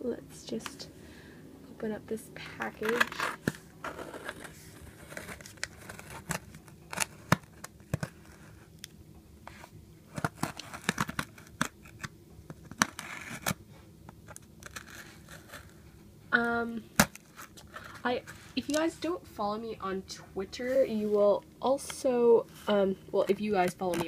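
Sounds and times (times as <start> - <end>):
tool scraping taped cardboard: 12.7 - 13.6, 14.6 - 15.7.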